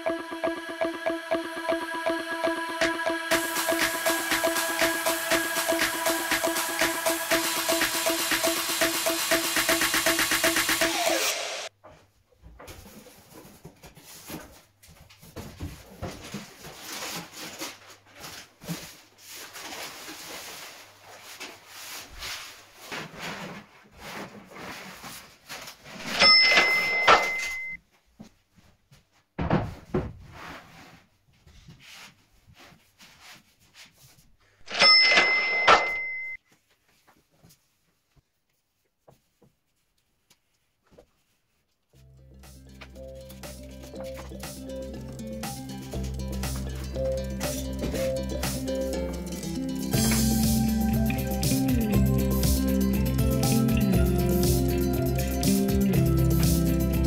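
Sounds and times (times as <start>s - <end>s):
veneer roll rustling: 12.6s - 26.0s.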